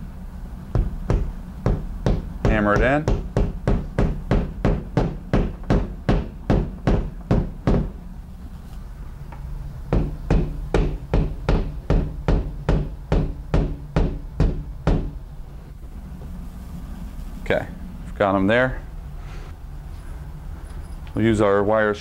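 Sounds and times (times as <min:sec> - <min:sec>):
hammer tapping into drywall: 0:00.8 - 0:07.9, 0:09.9 - 0:15.2.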